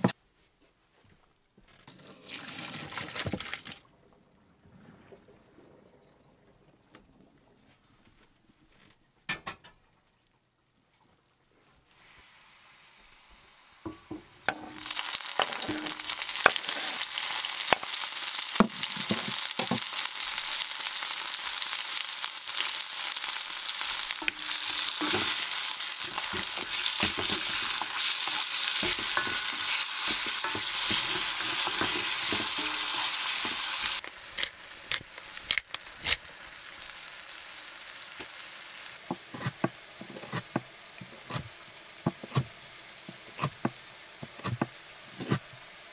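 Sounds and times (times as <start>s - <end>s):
food sizzling in a pan: 11.9s - 45.9s.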